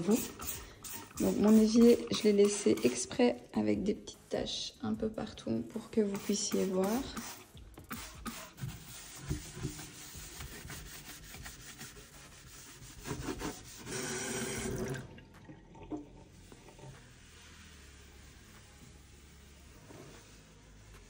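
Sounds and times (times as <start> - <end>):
sponge scrubbing steel sink: 0.0 - 4.7, 5.3 - 15.0
cloth wiping: 7.8 - 14.6, 16.9 - 21.0.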